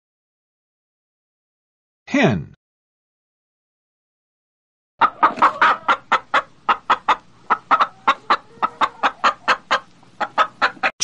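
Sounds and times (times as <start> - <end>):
hen clucking: 5.0 - 11.0.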